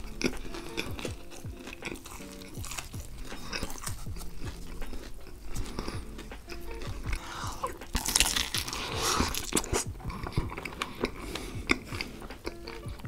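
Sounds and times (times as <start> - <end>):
biting into food: 0.0 - 13.0
wet smacking chewing: 0.0 - 13.0.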